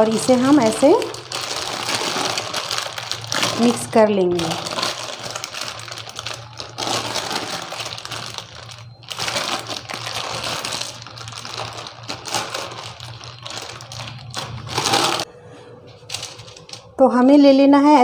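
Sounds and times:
plastic sheet crinkling: 0:00.0 - 0:15.3, 0:16.0 - 0:16.9.

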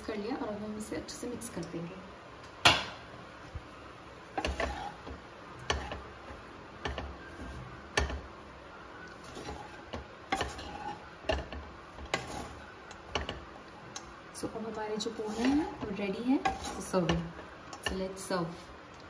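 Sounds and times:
spatula knocking against pan: 0:07.9 - 0:08.3.

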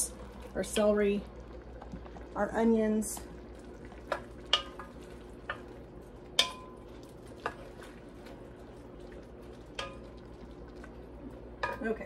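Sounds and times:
food sizzling: 0:00.0 - 0:12.0
wooden spoon stirring in pot: 0:00.0 - 0:12.0.

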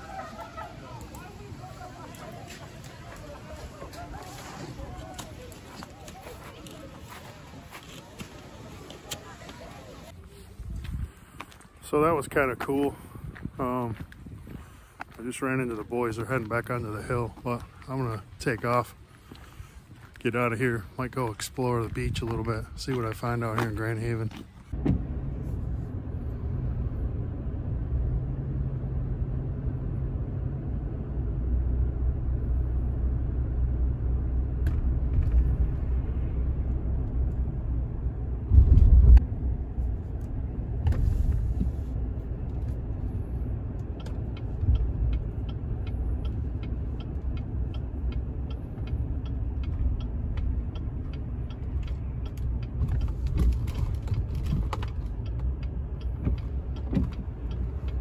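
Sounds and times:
car engine and road noise: 0:00.0 - 0:58.0
regular ticking: 0:42.0 - 0:58.0.

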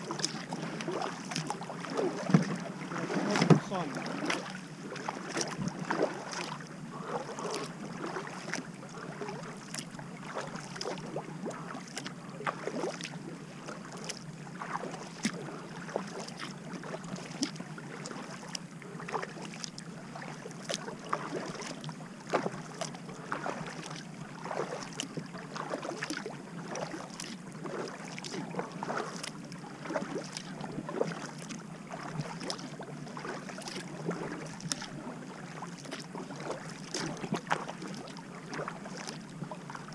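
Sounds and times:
steady low hum: 0:00.0 - 0:25.7
paddle splashes and drips: 0:00.0 - 0:39.9
water rushing along hull: 0:00.0 - 0:39.9.

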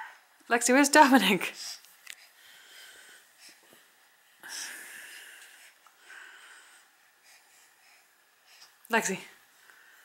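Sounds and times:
wheezy breathing: 0:01.4 - 0:08.8.

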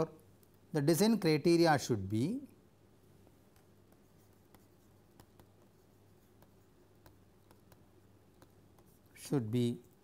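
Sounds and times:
stylus tapping on pen tablet: 0:03.5 - 0:09.0.

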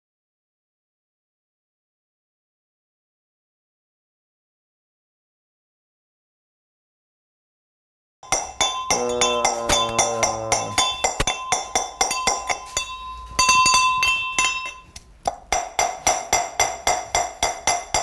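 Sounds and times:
brass pestle clinking in mortar: 0:08.2 - 0:18.0.

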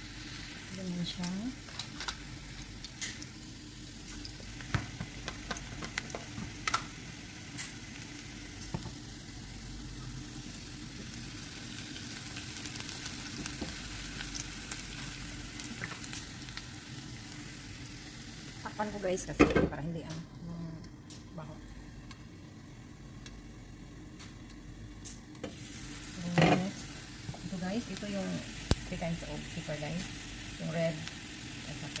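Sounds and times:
onions sizzling in oil: 0:00.0 - 0:20.4, 0:25.0 - 0:32.0.

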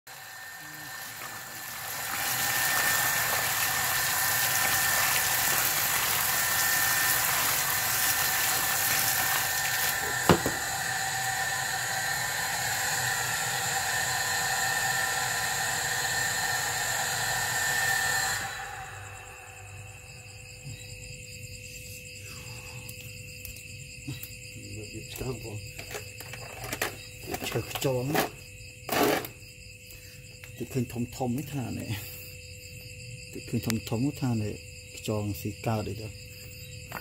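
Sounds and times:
thin steady whine: 0:00.1 - 0:37.0
water splashing into metal basin: 0:01.0 - 0:10.7
sharp knock: 0:10.2 - 0:10.6.

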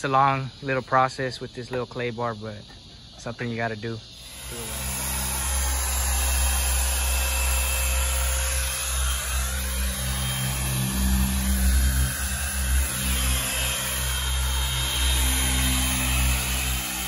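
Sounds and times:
electric car polisher running: 0:04.2 - 0:17.0.

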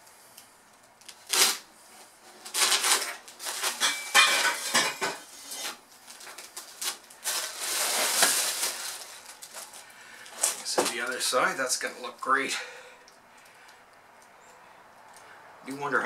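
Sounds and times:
plastic wrapping crinkling: 0:00.8 - 0:12.3
metal pipes clanking: 0:03.7 - 0:05.3.

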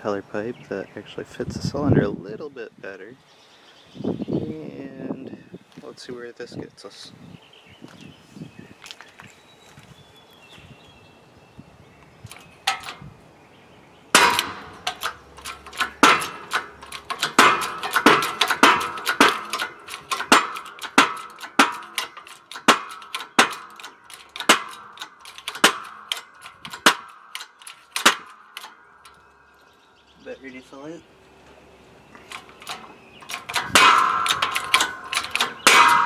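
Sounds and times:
light metal clicks: 0:12.3 - 0:13.0, 0:14.2 - 0:29.7, 0:31.4 - 0:36.0
sharp ringing metallic bangs: 0:12.3 - 0:13.0, 0:14.1 - 0:29.8, 0:32.2 - 0:36.0.

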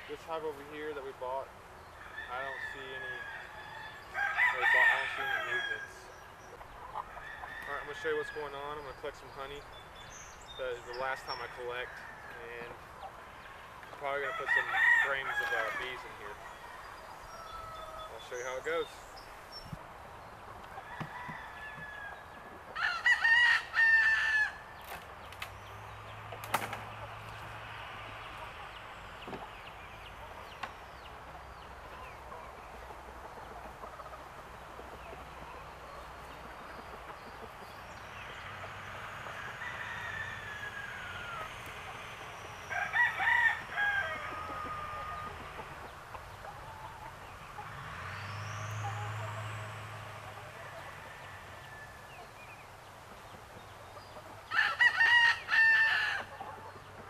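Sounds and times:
rooster crowing: 0:02.0 - 0:06.0, 0:14.2 - 0:18.2, 0:20.8 - 0:24.6, 0:38.8 - 0:45.7, 0:48.8 - 0:52.2, 0:54.5 - 0:56.5.

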